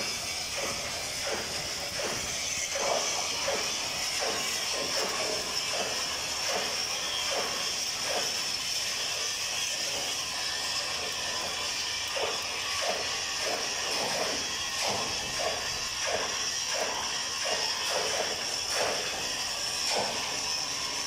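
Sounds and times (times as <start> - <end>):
welding arc hiss and crackle: 0.0 - 21.0.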